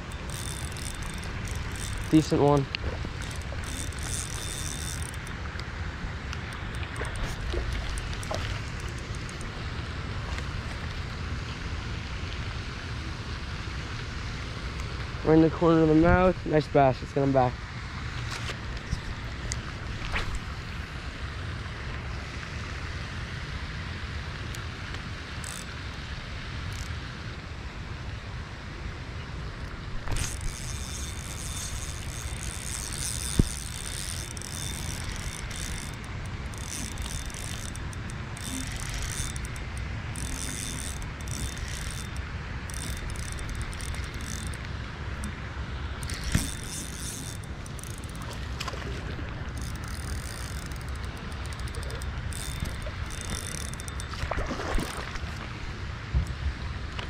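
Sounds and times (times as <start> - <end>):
fishing reel cranking: 0.0 - 5.6, 6.3 - 9.6, 25.4 - 25.8, 26.7 - 27.0, 30.0 - 45.3, 46.0 - 55.4.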